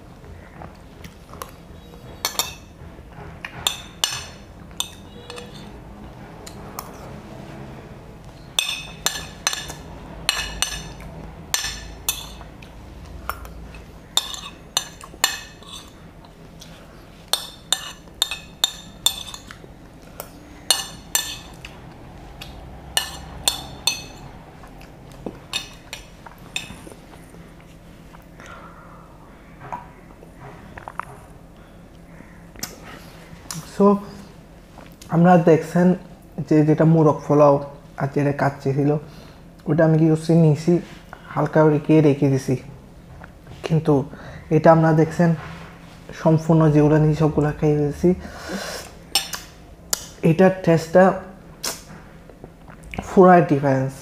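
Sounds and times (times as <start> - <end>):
spoon clinking against plate: 3.6 - 5.8, 8.4 - 12.5, 13.3 - 16.0, 17.3 - 19.6, 20.7 - 21.6.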